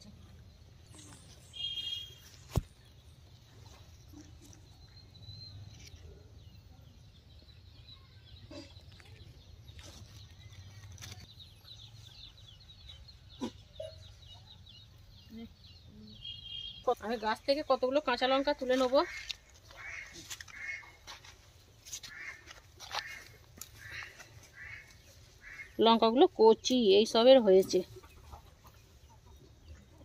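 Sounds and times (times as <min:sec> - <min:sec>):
bird chirps and calls: 0:00.9 - 0:02.4, 0:07.1 - 0:21.0.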